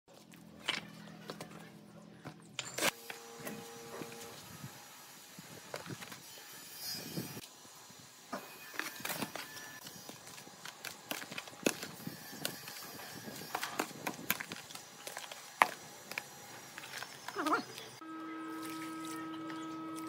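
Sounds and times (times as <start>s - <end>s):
metal scoop scraping dry cement: 8.4s - 18.0s.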